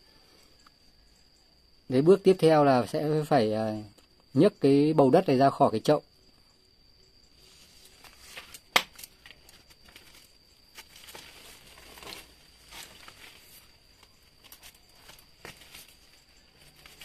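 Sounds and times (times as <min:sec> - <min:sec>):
soil rustling: 0:07.3 - 0:17.0
plastic pot crackling: 0:07.9 - 0:17.0.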